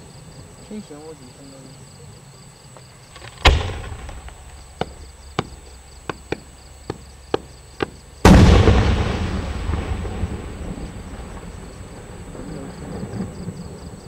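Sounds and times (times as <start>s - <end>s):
firework pops: 3.1s - 6.4s
firework shells bursting: 3.1s - 13.6s
loud rumbling firework boom: 3.4s - 5.1s, 8.2s - 14.0s.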